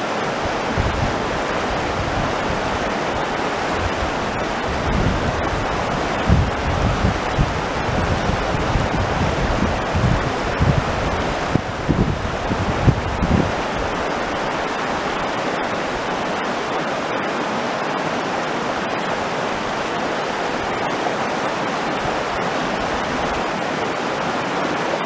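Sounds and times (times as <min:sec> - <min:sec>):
wind buffeting microphone: 0:00.0 - 0:16.1
river rushing over stones: 0:00.0 - 0:25.0.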